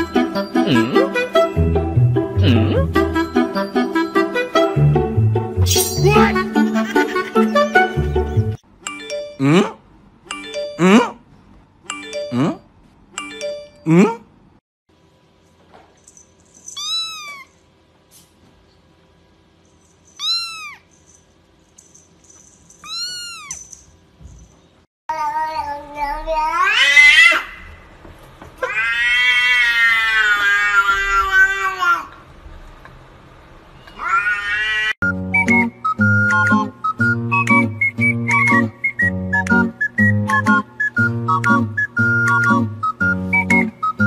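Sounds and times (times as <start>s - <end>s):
kitten mewing: 16.8s - 17.5s, 20.2s - 20.9s, 22.8s - 23.6s
cat yowling: 16.8s - 17.6s, 20.2s - 20.9s, 22.8s - 23.7s, 28.6s - 32.1s, 33.9s - 35.0s.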